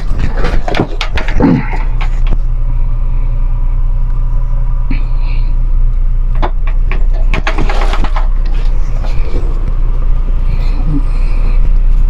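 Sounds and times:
objects clattering and rustling: 0:00.0 - 0:02.5, 0:06.4 - 0:09.8
loud steady low hum: 0:00.0 - 0:12.0.

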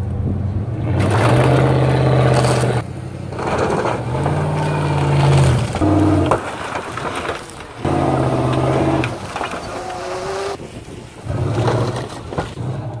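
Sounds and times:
truck engine revving: 0:00.6 - 0:06.7, 0:07.8 - 0:10.6.

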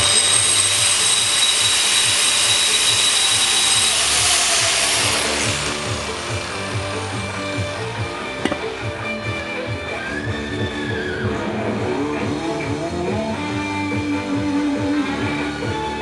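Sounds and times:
angle grinder grinding concrete: 0:00.0 - 0:09.2
background music with beat: 0:05.5 - 0:16.0.

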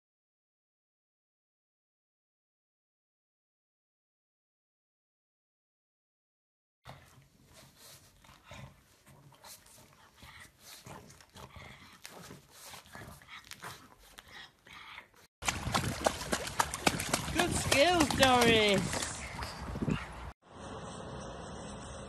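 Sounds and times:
dog making soft sleeping noises: 0:06.9 - 0:15.3
water splashing: 0:15.4 - 0:20.3.

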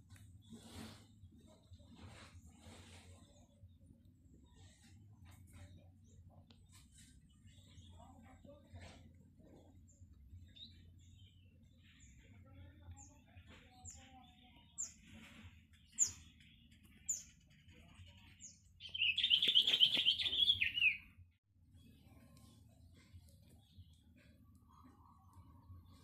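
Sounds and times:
high falling bird chirp: 0:18.4 - 0:21.2
bird chattering trill: 0:18.8 - 0:21.1.

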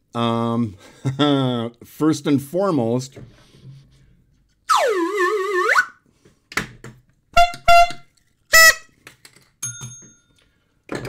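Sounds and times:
toy horn wobbling tone: 0:04.7 - 0:06.0, 0:07.4 - 0:08.9
toy horn honks: 0:07.4 - 0:08.9.

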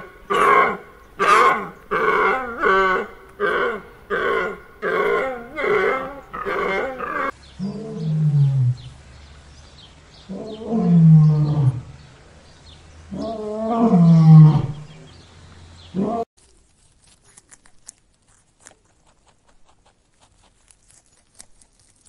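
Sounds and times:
animal calling: 0:00.0 - 0:08.9, 0:15.9 - 0:16.3.

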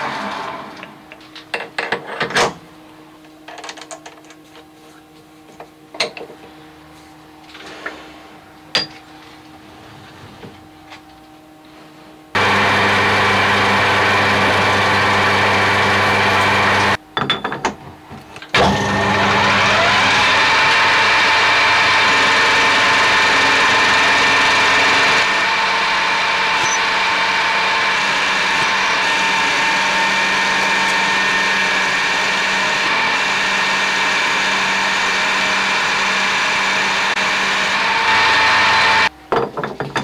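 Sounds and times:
metal lathe running: 0:12.4 - 0:17.0, 0:18.6 - 0:39.1.

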